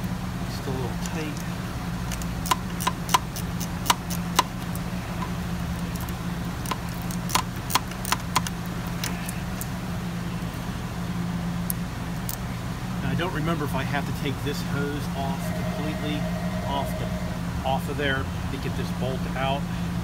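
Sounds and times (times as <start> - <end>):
steady low hum: 13.6 - 18.5.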